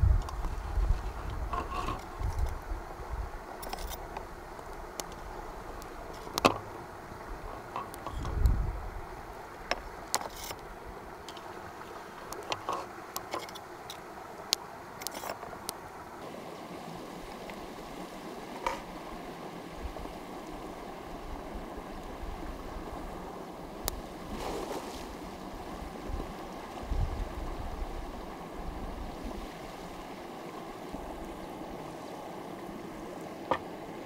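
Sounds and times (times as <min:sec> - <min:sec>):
stream running: 0:00.0 - 0:34.0
sharp clicks and knocks: 0:06.2 - 0:06.7.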